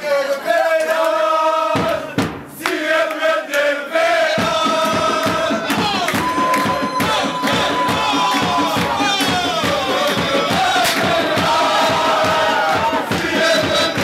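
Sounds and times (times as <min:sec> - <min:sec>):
men chanting in held notes: 0:00.0 - 0:14.0
fast rhythmic beat: 0:04.0 - 0:14.0.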